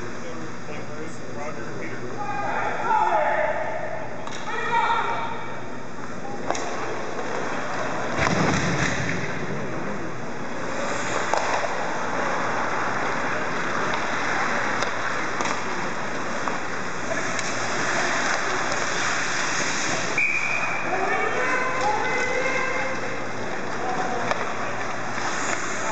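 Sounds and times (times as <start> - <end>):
hockey sticks and pucks clacking: 6.4 - 9.3, 10.6 - 20.5, 21.6 - 25.9
skates hissing on ice: 10.6 - 20.2, 25.1 - 25.9.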